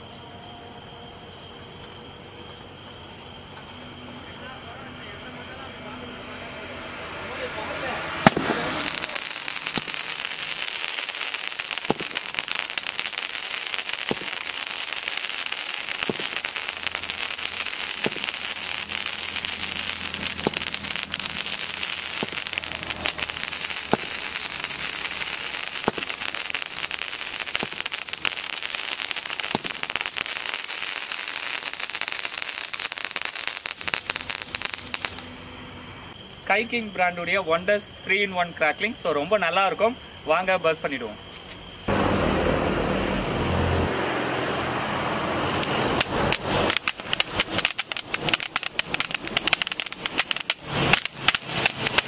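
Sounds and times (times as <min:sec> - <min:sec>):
crackling and hissing sparks: 0:06.7 - 0:36.6, 0:45.4 - 0:52.0
firework shots: 0:07.3 - 0:35.6, 0:45.5 - 0:52.0.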